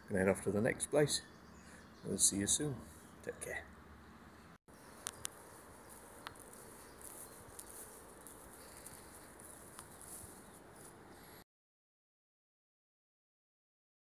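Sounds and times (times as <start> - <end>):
insects chirping: 4.7 - 11.4
soft clicks: 5.0 - 5.4.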